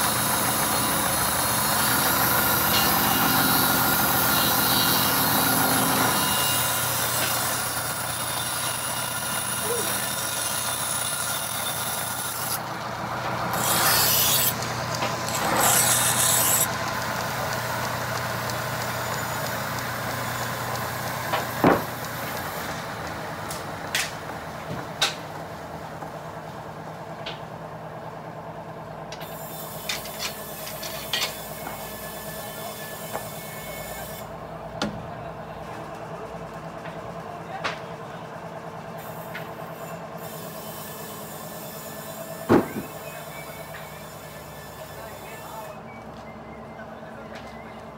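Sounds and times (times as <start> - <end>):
band saw cutting log: 0.0 - 24.4, 29.2 - 34.4, 39.0 - 45.7
sharp wooden knock: 42.5 - 43.0.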